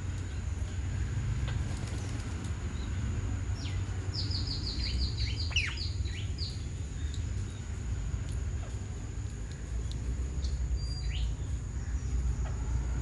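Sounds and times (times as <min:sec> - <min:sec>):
low background rumble: 0:00.0 - 0:13.0
bird high falling chirps: 0:03.6 - 0:07.2.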